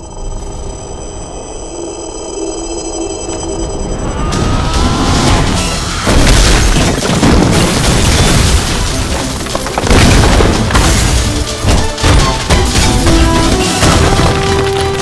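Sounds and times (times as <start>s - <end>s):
debris flying: 4.8s - 15.0s
heavy booms and crashes: 5.0s - 14.6s
glass smashing: 6.0s - 14.7s.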